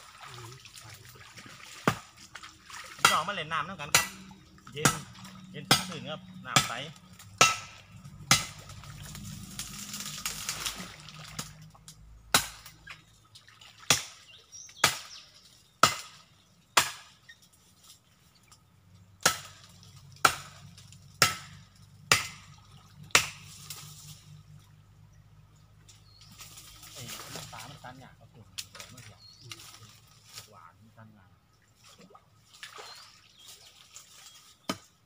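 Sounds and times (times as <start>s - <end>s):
water splashing: 0.0s - 16.2s, 19.3s - 25.0s, 26.2s - 34.7s
sharp chopping strikes: 3.0s - 8.8s, 12.3s - 12.8s, 14.8s - 15.2s, 15.8s - 16.2s, 16.8s - 17.2s, 19.2s - 20.6s, 21.2s - 22.5s, 23.1s - 23.5s.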